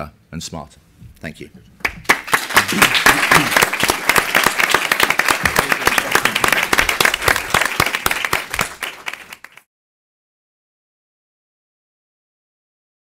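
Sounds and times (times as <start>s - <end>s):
audience applauding: 1.8s - 9.7s.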